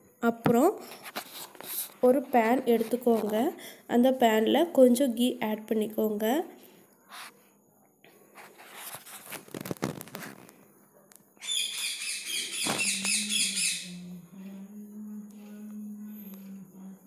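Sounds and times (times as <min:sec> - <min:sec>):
handling and rustling: 0:08.4 - 0:10.6
high bird chirps: 0:11.4 - 0:14.1
low steady hum: 0:13.2 - 0:17.0.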